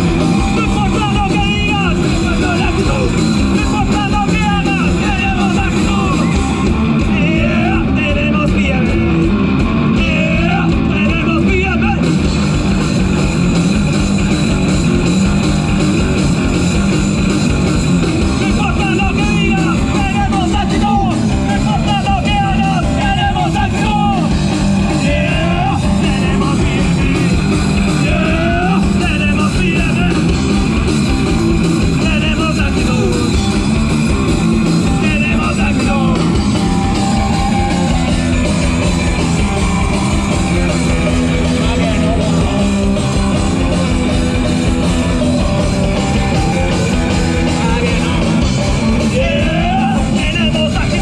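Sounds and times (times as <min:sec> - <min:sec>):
live rock band playing: 0:00.0 - 0:51.0
person singing: 0:07.0 - 0:09.2, 0:09.9 - 0:12.1, 0:18.4 - 0:30.3, 0:34.9 - 0:36.4, 0:46.0 - 0:51.0.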